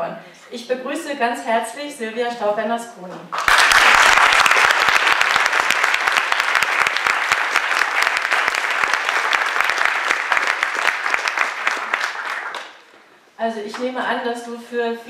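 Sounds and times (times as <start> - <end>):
audience applauding: 3.4 - 12.9.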